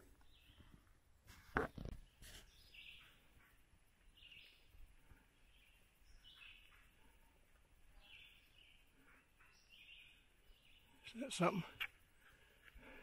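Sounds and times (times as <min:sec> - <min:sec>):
faint high bird chirps: 0:01.8 - 0:11.6.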